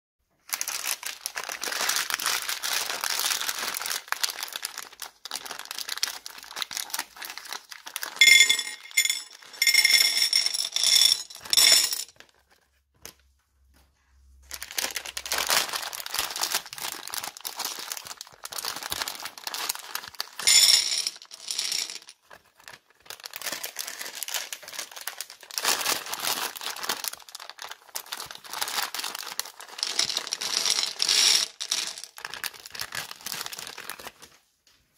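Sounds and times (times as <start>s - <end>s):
plastic bag crinkling: 0.4s - 12.6s, 14.5s - 34.4s
candies clicking onto a plate: 29.6s - 32.5s.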